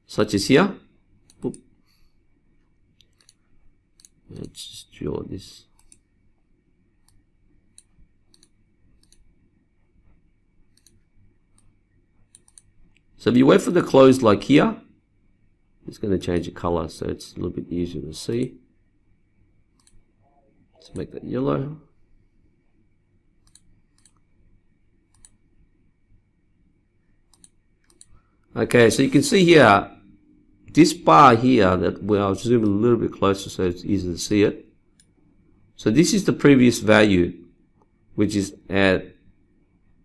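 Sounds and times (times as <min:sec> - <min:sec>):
faint computer mouse clicks: 0:01.2 - 0:01.7, 0:03.0 - 0:03.4, 0:04.0 - 0:04.6, 0:05.7 - 0:06.1, 0:07.0 - 0:09.3, 0:10.7 - 0:13.1, 0:19.8 - 0:20.0, 0:23.4 - 0:24.3, 0:25.1 - 0:25.4, 0:27.3 - 0:28.2, 0:35.0 - 0:35.2.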